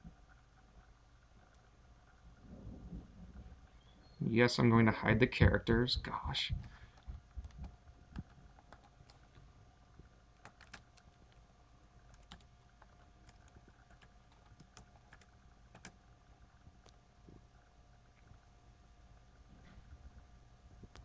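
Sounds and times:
laptop keyboard keystrokes: 6.6s - 9.4s, 10.4s - 11.4s, 12.1s - 16.0s.

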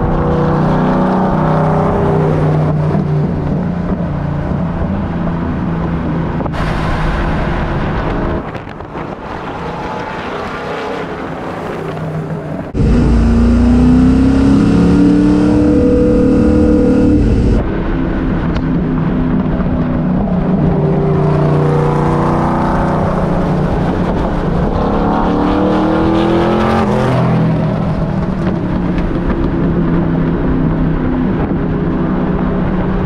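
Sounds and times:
road noise: 0.0s - 33.0s
car engine revving: 12.6s - 17.7s.

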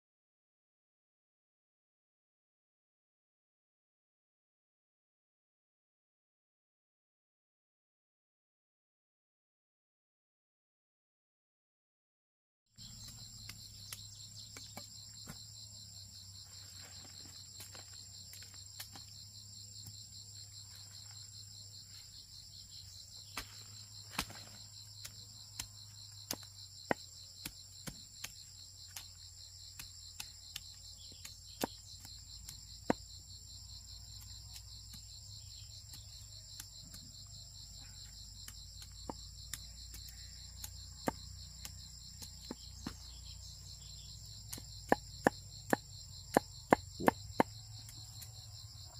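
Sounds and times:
insects trilling: 12.8s - 48.9s.

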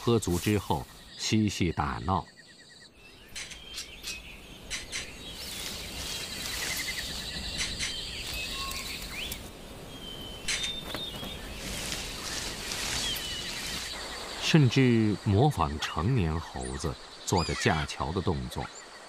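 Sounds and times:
background hiss: 0.0s - 19.0s
bird chirps: 0.0s - 19.0s
high insect trill: 0.0s - 19.0s.

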